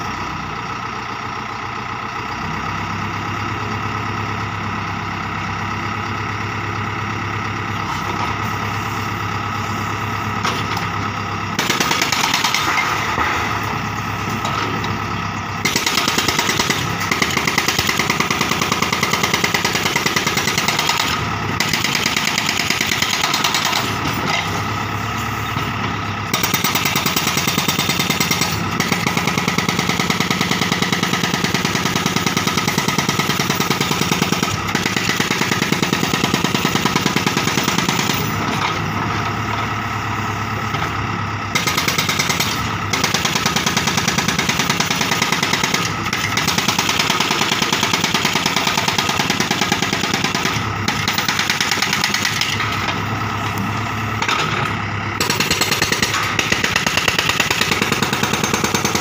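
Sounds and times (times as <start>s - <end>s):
diesel engine running: 0.0s - 59.0s
hydraulic breaker hammering concrete: 11.6s - 13.4s, 15.6s - 24.1s, 26.3s - 38.5s, 41.6s - 52.9s, 54.2s - 59.0s.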